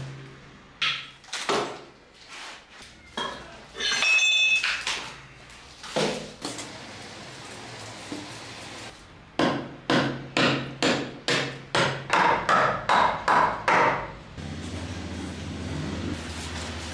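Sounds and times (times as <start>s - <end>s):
metallic clanking on tile floor: 3.1s - 5.2s
hammer striking axe head: 9.4s - 14.1s.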